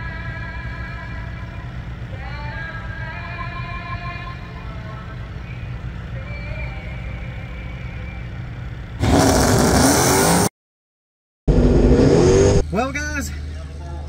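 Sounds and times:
low steady rumble: 0.0s - 9.6s
loud engine blast: 8.9s - 10.5s, 11.5s - 13.2s.

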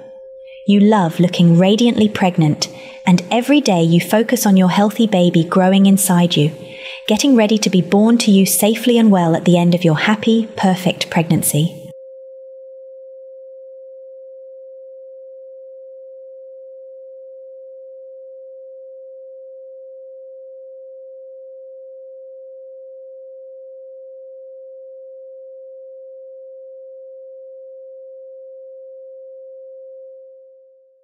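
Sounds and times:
steady electronic pure tone: 0.0s - 11.9s.

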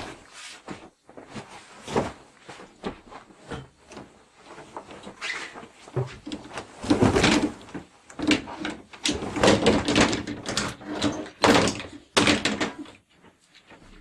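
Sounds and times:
wooden doors knocking and clattering: 6.0s - 13.1s.

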